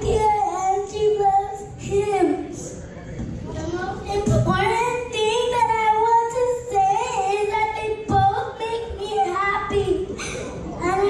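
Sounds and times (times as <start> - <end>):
girl singing into microphone: 0.0 - 2.6, 3.5 - 11.0.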